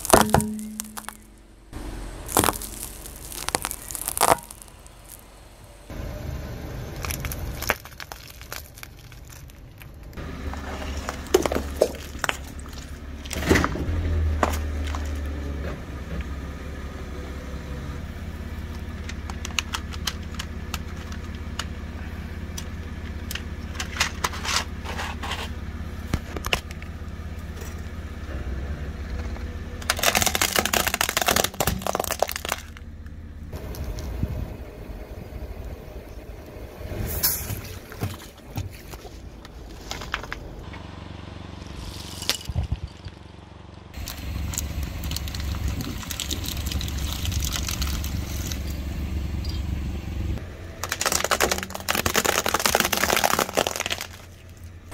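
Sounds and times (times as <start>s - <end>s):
tyre crushing objects: 0.0s - 1.4s, 2.2s - 5.2s, 7.0s - 15.3s, 29.8s - 32.8s, 50.8s - 54.4s
car engine rumble: 0.0s - 54.9s.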